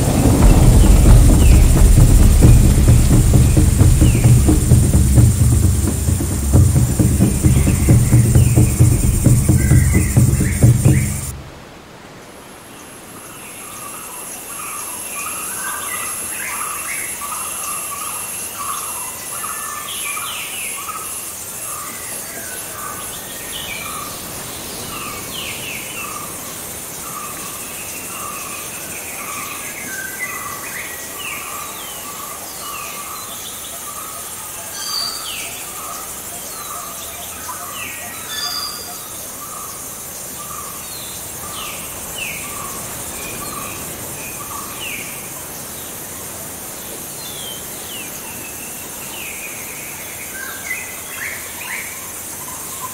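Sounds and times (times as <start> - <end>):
high insect drone: 0.0 - 11.4
low repeating bird call: 0.0 - 11.6
birds chirping: 0.0 - 11.7.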